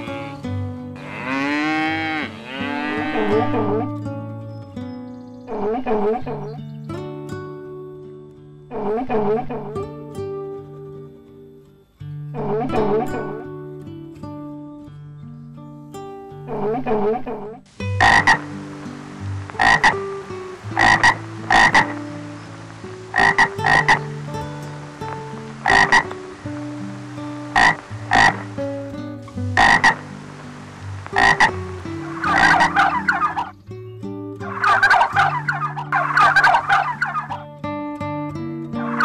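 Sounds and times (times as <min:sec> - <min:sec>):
tree frog croaking: 0:08.7 - 0:09.8, 0:12.4 - 0:13.5, 0:16.5 - 0:33.6, 0:34.4 - 0:37.5.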